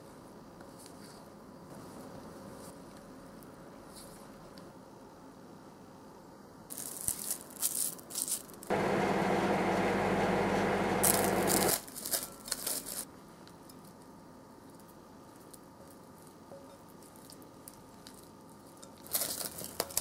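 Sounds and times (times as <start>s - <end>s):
plastic cling wrap crinkling: 6.7s - 8.7s, 11.0s - 13.1s, 18.9s - 20.0s
microwave oven humming: 8.7s - 11.8s.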